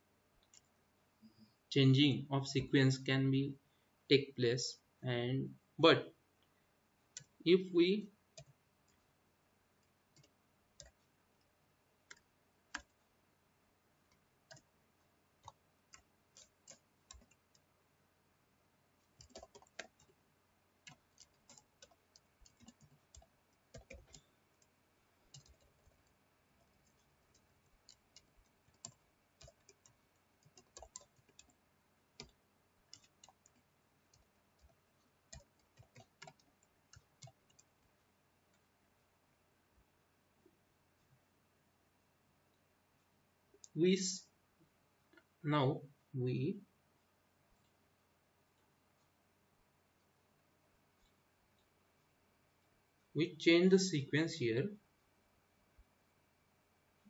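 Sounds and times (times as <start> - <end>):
faint computer keyboard typing: 0.4 - 1.6, 6.4 - 13.2, 14.0 - 17.8, 18.9 - 41.3, 42.5 - 53.2.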